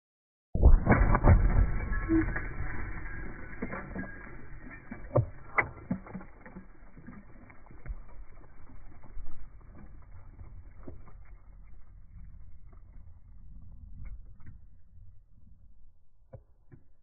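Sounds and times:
debris pattering on gravel: 0.9 - 13.0.

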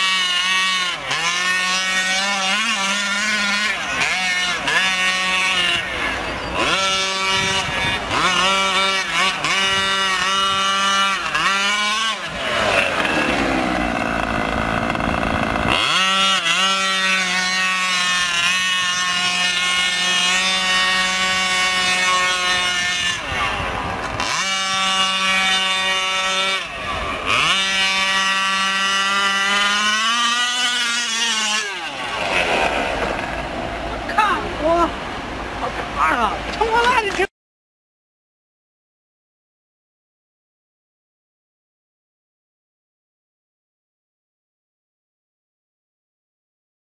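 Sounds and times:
small two-stroke engine revving: 0.0 - 37.3.

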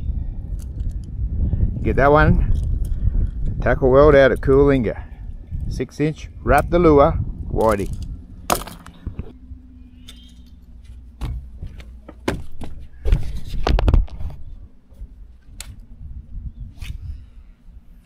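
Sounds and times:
faint low hum: 0.0 - 18.0
heavy thumps: 6.6 - 9.4, 10.4 - 15.1
fishing gear knocking and rattling: 7.6 - 9.4.

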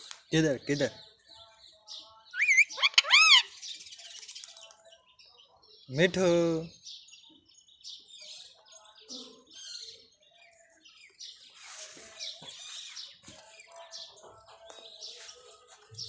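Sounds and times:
parakeet chirping and chattering: 2.3 - 4.7.

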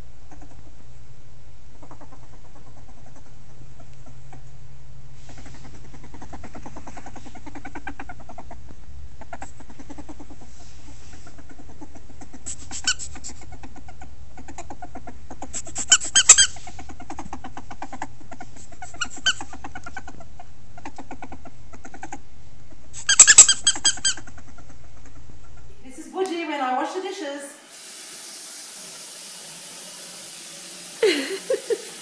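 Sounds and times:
steady low hum: 0.0 - 23.1
ferret squeaking: 15.5 - 18.0, 18.8 - 20.2, 23.0 - 24.7.

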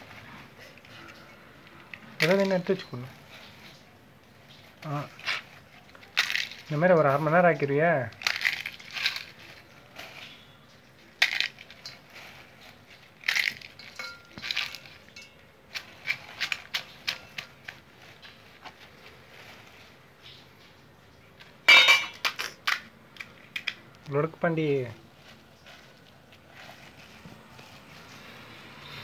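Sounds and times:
crisp shells crackling: 0.0 - 29.0
metal ladle clattering on bowl: 21.7 - 22.6.

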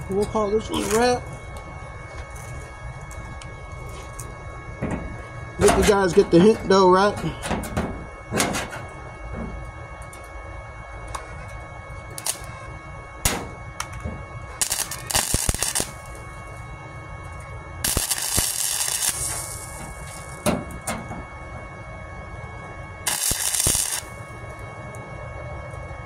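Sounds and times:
welding arc crackling: 0.0 - 1.6, 11.4 - 12.6, 13.2 - 16.6, 17.2 - 21.0, 23.0 - 24.6
sharp arc pops: 14.6 - 16.0, 17.9 - 20.6, 23.1 - 24.1.

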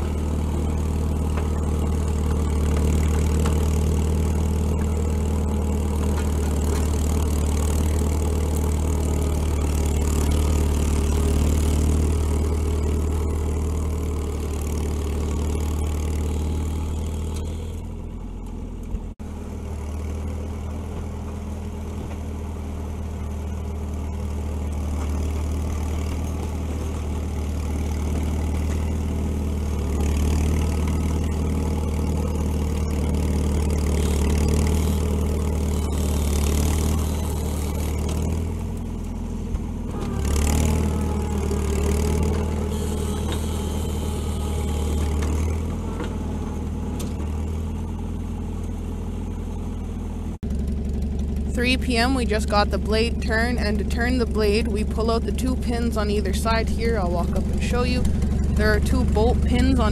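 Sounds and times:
dozer engine running: 0.0 - 59.9.

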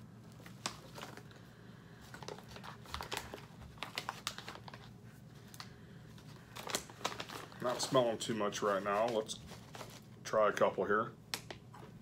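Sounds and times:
foil snack pouch crinkling: 2.0 - 10.0.

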